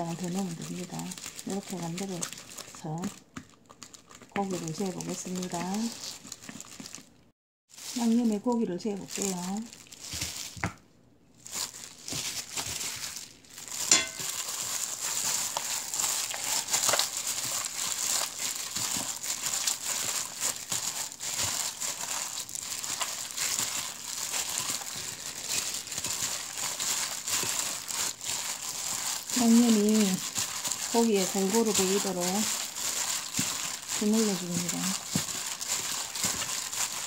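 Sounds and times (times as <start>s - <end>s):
plastic gloves crinkling on wet meat: 0.0s - 37.0s.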